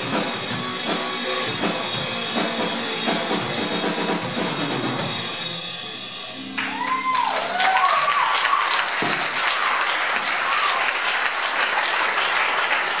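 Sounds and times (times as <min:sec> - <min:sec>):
guitar and drum chord ringing: 0:00.0 - 0:07.1
audience clapping and cheering: 0:06.5 - 0:13.0.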